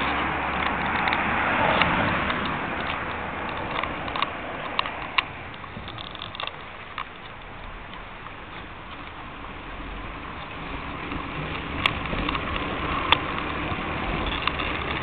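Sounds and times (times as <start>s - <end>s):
outdoor background hiss: 0.0s - 15.0s
sharp clicks and taps: 0.5s - 9.2s.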